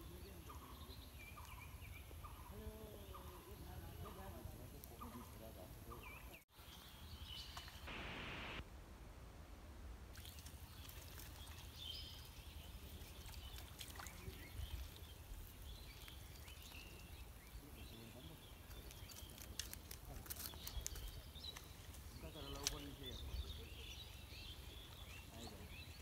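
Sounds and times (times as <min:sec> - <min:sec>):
small clicks and rustles: 0:18.6 - 0:22.9.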